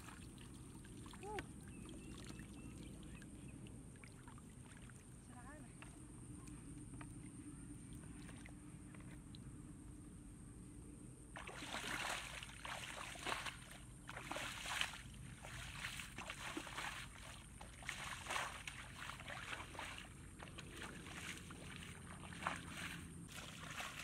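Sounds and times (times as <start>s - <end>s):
bare feet splashing in water: 3.9s - 5.2s, 7.9s - 8.6s, 11.4s - 24.0s.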